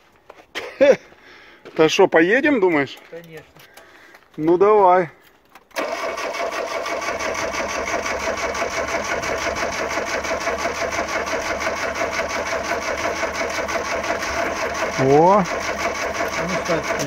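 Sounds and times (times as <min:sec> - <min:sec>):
engine cranking on starter: 0:05.6 - 0:17.0.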